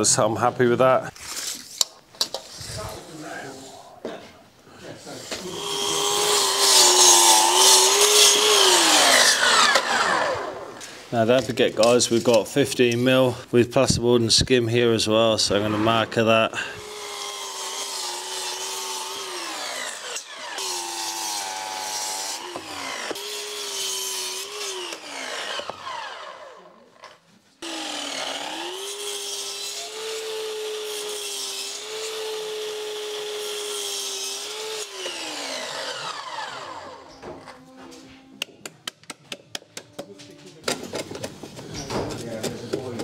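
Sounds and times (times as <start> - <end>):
mitre saw motor whine: 5.5 - 10.8, 16.8 - 26.7, 34.4 - 37.2.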